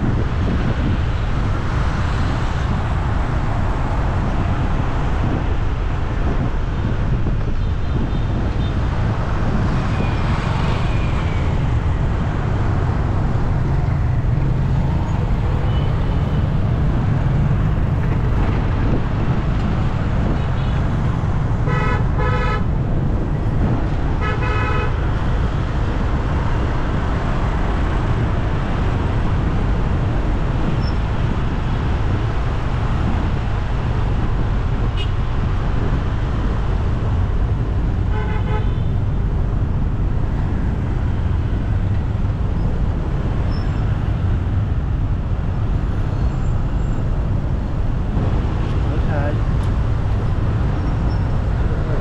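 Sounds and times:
road traffic rumble: 0.0s - 52.0s
vehicle horn toots: 21.7s - 22.7s, 24.2s - 25.0s, 38.1s - 38.9s.

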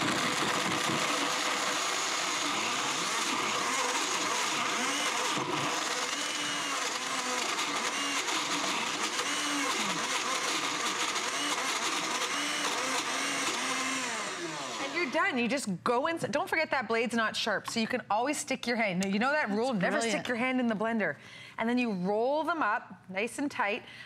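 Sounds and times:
blender motor chopping: 0.0s - 15.3s.

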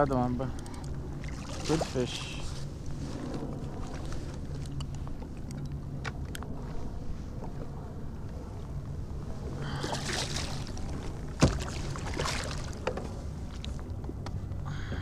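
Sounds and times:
steady low rumble: 0.0s - 15.0s
fish splashing at water surface: 9.6s - 12.8s.

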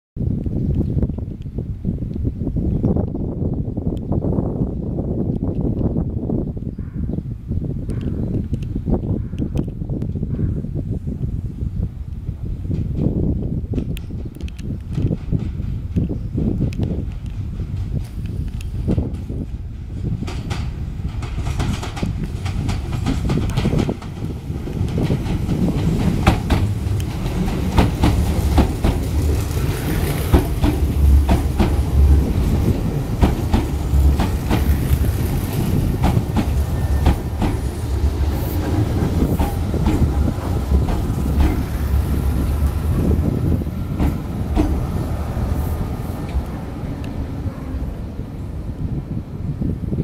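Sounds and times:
train rumbling past: 12.2s - 50.0s
wheels clacking over rail joints: 20.2s - 48.1s.

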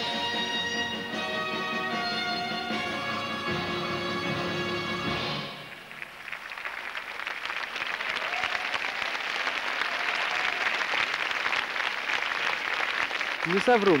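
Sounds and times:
skating music: 0.0s - 6.0s
crowd applause: 5.2s - 14.0s.

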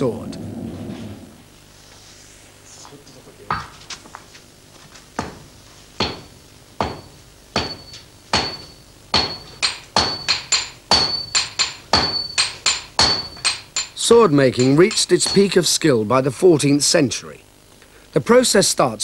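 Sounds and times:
hammers striking steel on anvil: 6.0s - 16.0s.

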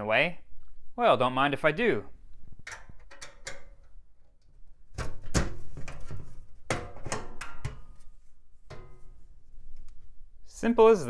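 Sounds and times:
sheet metal knocks and scrapes: 4.9s - 8.1s, 8.7s - 9.3s.

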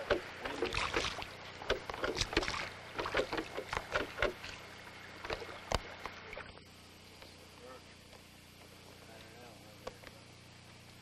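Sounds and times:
oar splashes and knocks: 0.0s - 4.6s, 5.2s - 6.1s.

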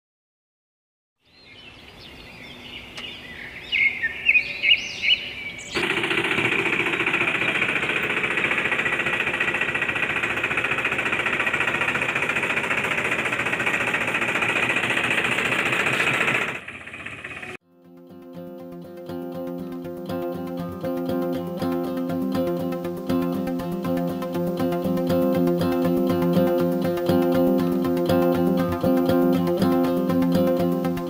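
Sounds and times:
birds chirping: 1.2s - 10.7s
small machine rattling: 5.8s - 17.6s.

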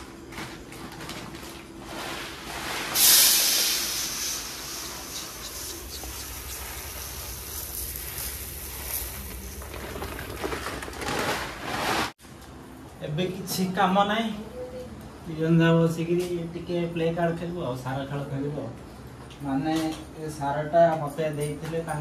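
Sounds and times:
rice grains pouring into metal: 1.9s - 12.1s.

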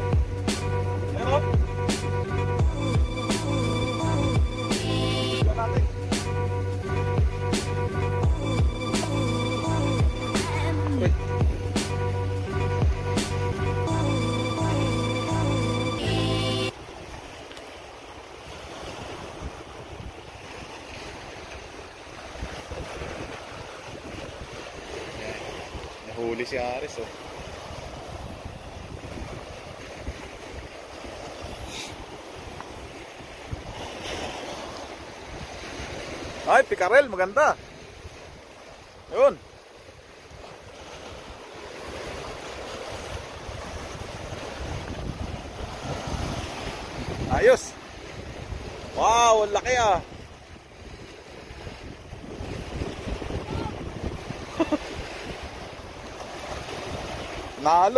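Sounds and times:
small waves washing on rocks: 16.7s - 57.9s
wind gusting on microphone: 18.4s - 26.5s, 27.2s - 36.4s, 39.9s - 57.7s.

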